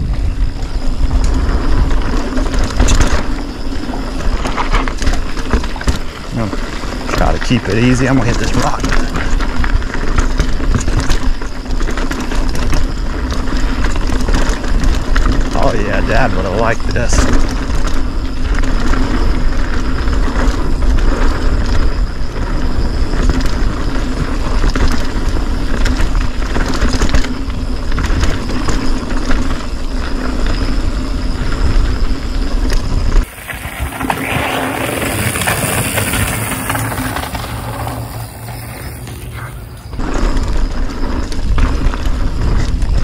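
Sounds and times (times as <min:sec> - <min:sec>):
bike clattering over bumps: 0:00.0 - 0:43.0
tyre noise on dirt: 0:00.0 - 0:43.0
wind buffeting microphone: 0:00.0 - 0:43.0.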